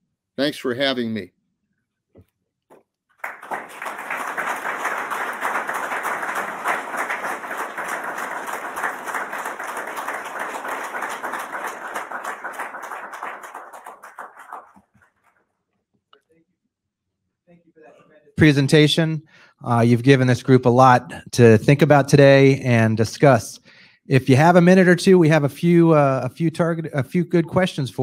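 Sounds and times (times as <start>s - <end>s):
audience applauding: 3.2s - 15.2s.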